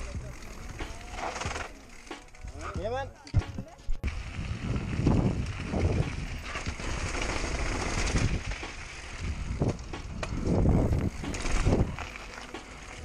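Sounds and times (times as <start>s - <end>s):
bike frame and chain rattling: 0.0s - 13.0s
bike tyre noise: 0.0s - 13.0s
rushing wind: 4.0s - 12.0s.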